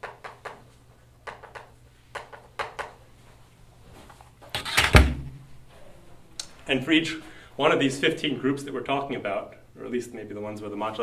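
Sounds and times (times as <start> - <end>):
loud thump: 4.8 - 5.4.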